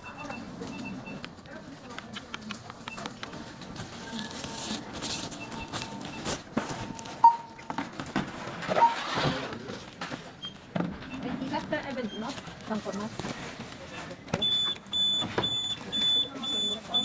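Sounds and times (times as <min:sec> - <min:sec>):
barcode scanner beeping: 0:00.0 - 0:01.4, 0:02.8 - 0:07.8, 0:08.8 - 0:09.0, 0:14.4 - 0:17.0.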